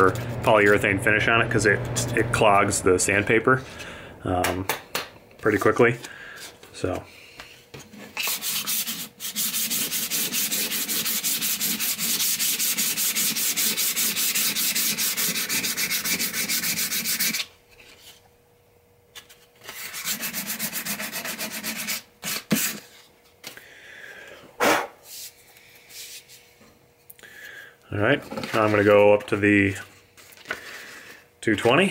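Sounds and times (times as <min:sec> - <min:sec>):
sandpaper rubbing on wood: 0:08.2 - 0:17.5, 0:19.7 - 0:22.8.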